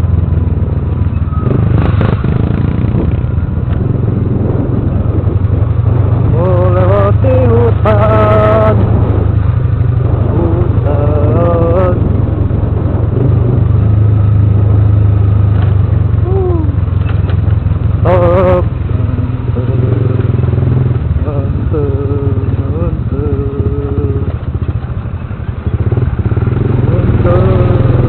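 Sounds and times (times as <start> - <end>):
motorcycle engine running: 0.0 - 28.0
wind and road noise: 0.0 - 28.0.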